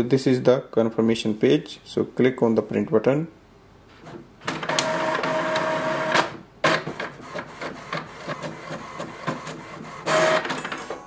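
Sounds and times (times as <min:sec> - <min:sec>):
printer mechanism whining: 0:04.0 - 0:11.0
quiet clicks and whirs: 0:04.0 - 0:11.0
printer sharp clack: 0:04.4 - 0:11.0.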